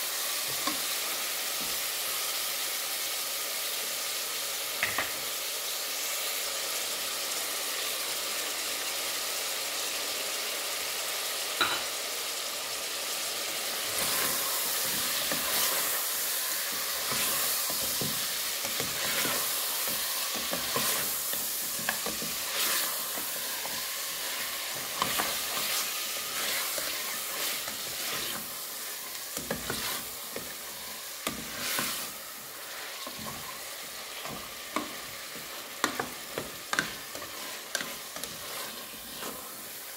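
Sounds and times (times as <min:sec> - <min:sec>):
meat and onions sizzling in oil: 0:00.0 - 0:39.9
spatula scraping a pot: 0:13.9 - 0:39.9.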